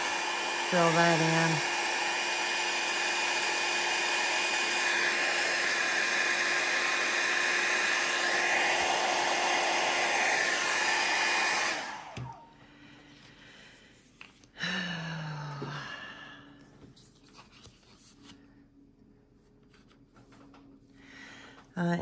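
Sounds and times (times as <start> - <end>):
hair dryer blowing with whine: 0.0 - 13.3.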